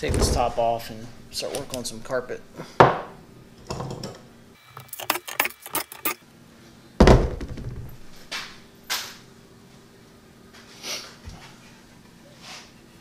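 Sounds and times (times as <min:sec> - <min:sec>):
heavy thunk: 0:00.0 - 0:00.8, 0:07.0 - 0:08.0.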